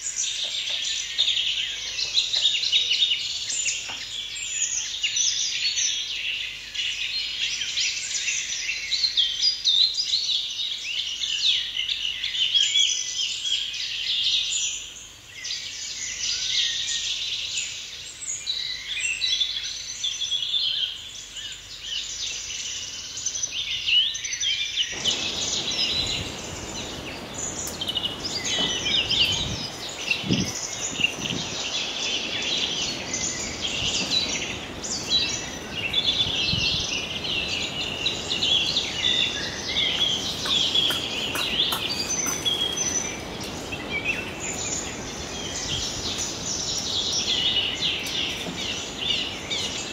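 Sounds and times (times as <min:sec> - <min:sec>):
chorus of high chirping calls: 0:24.9 - 0:49.9
low rumbling noise: 0:25.0 - 0:49.9.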